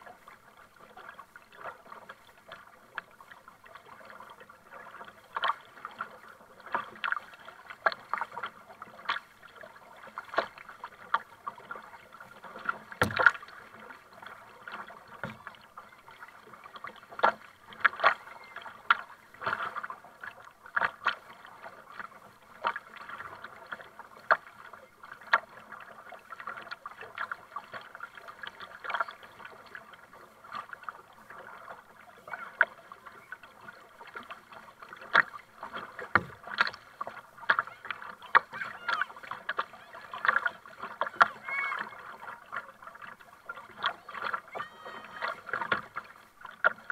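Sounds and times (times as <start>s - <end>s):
paddle splashing water: 0.0s - 46.9s
water washing: 35.0s - 46.8s.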